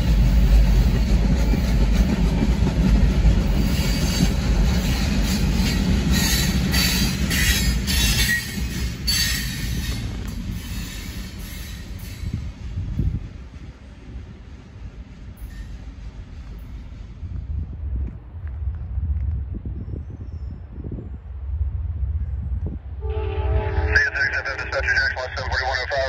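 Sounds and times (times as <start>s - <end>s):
freight train rumbling past: 0.0s - 26.0s
train wheels squealing: 3.5s - 12.5s, 15.3s - 17.0s.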